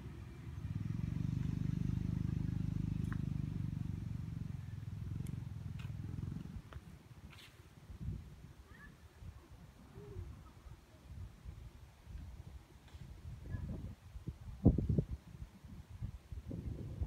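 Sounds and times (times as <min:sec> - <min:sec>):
low pulsing engine rumble: 0:00.0 - 0:07.2.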